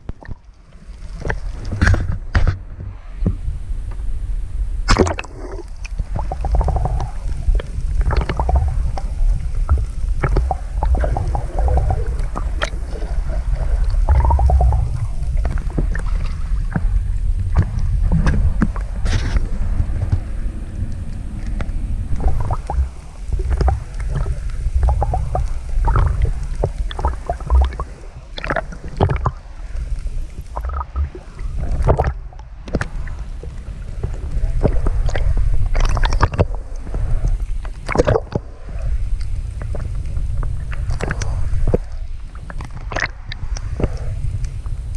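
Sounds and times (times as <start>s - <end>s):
water rumbling underwater: 0.0s - 44.9s
knocks and crackles: 1.2s - 4.0s, 6.2s - 27.9s.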